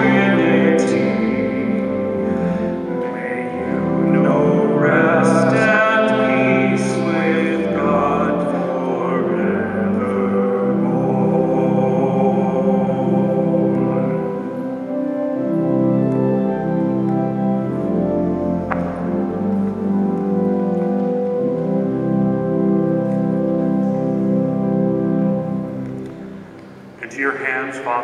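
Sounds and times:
church organ chords: 0.0s - 28.0s.

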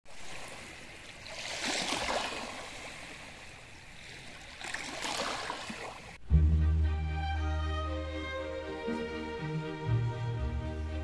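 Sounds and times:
small waves lapping on shore: 0.0s - 6.2s.

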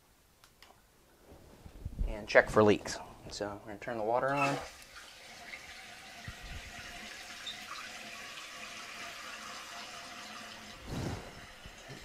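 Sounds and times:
water hissing into toilet tank: 4.4s - 12.0s.

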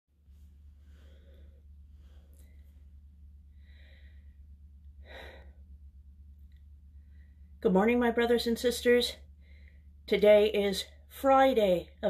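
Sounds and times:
steady low hum: 0.2s - 11.1s
person breathing softly: 0.4s - 5.8s, 6.9s - 7.6s, 9.3s - 10.0s.

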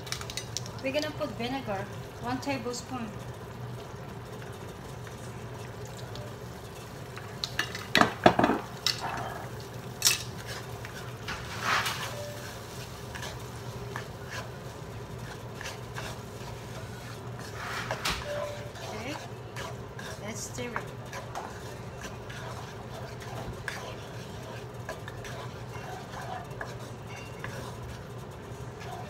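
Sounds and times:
loud knocks on a pan: 8.0s - 8.6s
wooden spatula scraping a pan: 10.4s - 29.0s.

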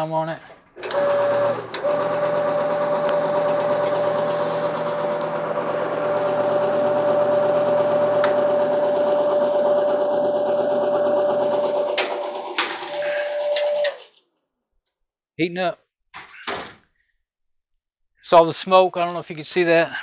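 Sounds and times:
clothes dryer humming: 0.5s - 14.0s.

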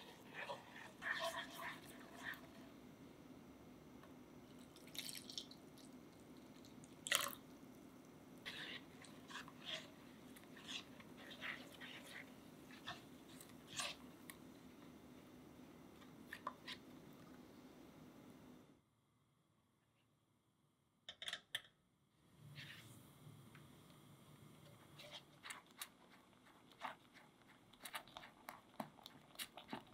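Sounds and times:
spatula scraping saucepan: 0.0s - 2.6s, 8.4s - 14.1s
faint steady hum: 0.0s - 29.9s
milk being poured: 4.5s - 7.5s.

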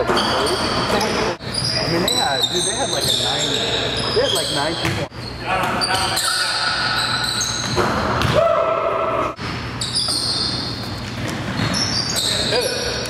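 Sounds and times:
sneakers squeaking on court: 0.0s - 8.4s, 9.4s - 13.0s
steady squeal: 0.2s - 7.8s, 9.8s - 10.9s, 11.6s - 13.0s
basketball bouncing: 4.7s - 5.1s, 7.5s - 8.6s.

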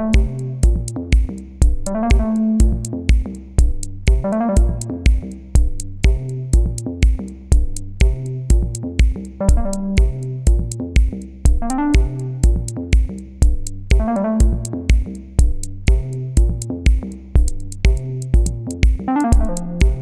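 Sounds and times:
electronic music with drum-machine beat: 0.0s - 20.0s.

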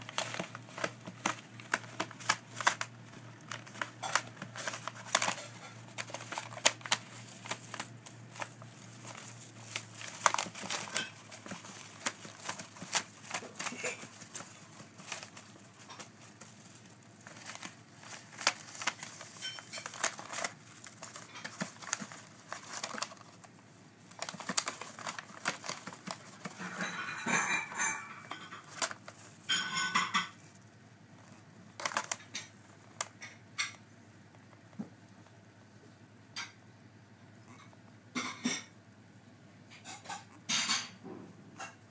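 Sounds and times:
paper bedding rustling: 0.0s - 29.5s
light clicks and scratches: 0.0s - 35.4s.

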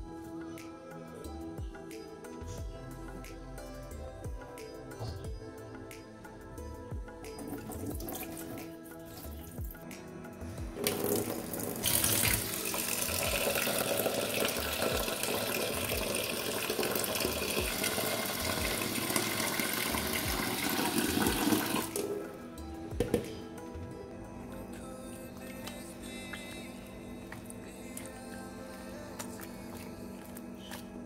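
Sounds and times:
soft background music: 0.0s - 31.0s
tap water running into steel bowl: 10.8s - 22.2s.

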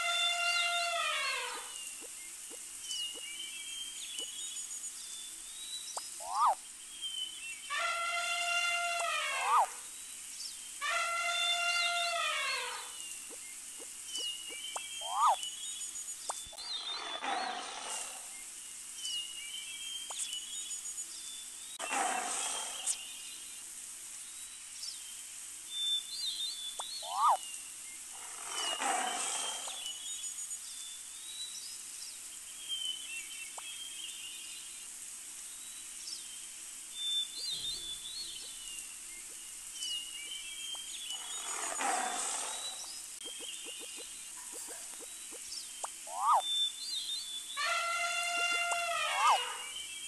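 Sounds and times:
bird chirps: 0.0s - 7.9s, 11.3s - 17.2s, 26.3s - 27.4s, 37.0s - 50.0s
elephant trumpeting: 47.6s - 49.7s.

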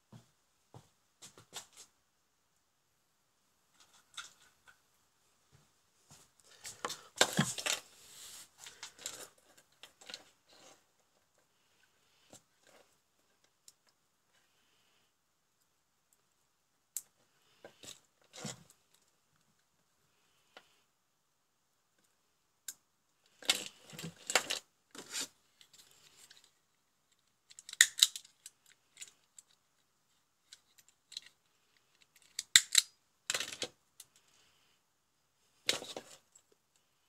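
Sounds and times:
wire connectors clicking and snapping: 27.1s - 29.6s, 30.4s - 34.2s.

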